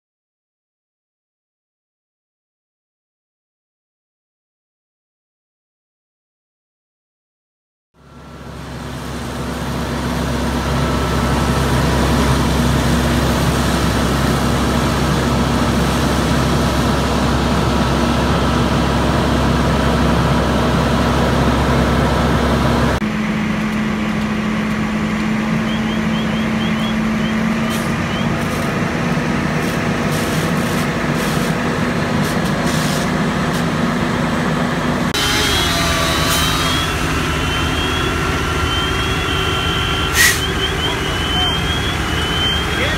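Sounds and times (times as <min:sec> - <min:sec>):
diesel engine humming: 0:08.0 - 0:42.9
engine noise with clicks: 0:23.0 - 0:33.8.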